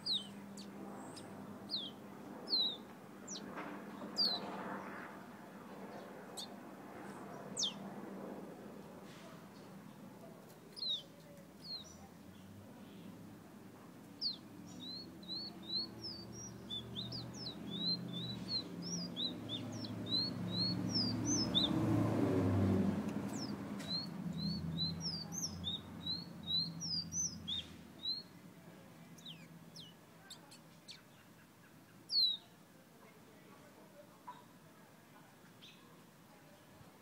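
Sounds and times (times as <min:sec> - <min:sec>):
songbird whistling: 0:14.2 - 0:21.8, 0:23.3 - 0:28.3.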